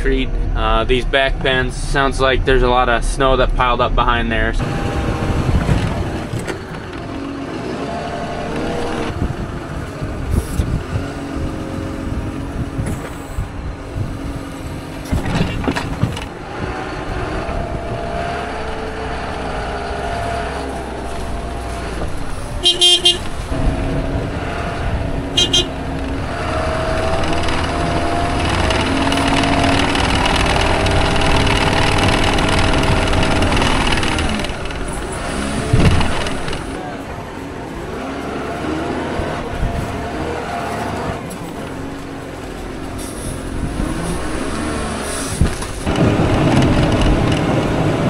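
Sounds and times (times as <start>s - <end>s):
diesel engine revving: 0.0s - 48.0s.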